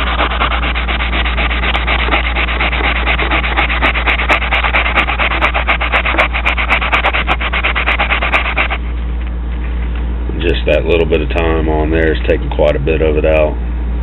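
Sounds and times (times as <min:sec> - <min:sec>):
sanding pad scraping metal blade: 0:00.0 - 0:08.8.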